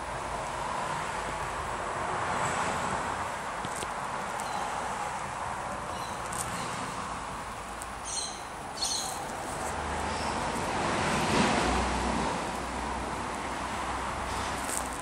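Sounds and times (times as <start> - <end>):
outdoor background noise: 0.0 - 15.0
high bird chirps: 4.4 - 4.8, 5.9 - 6.8, 8.0 - 9.2.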